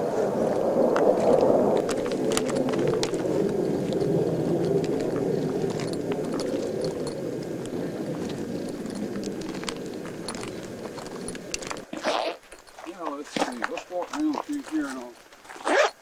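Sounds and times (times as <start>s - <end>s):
steady rushing noise: 0.0s - 11.9s
footsteps crunching on stony ground: 0.0s - 16.0s
stones clicking: 0.9s - 15.6s.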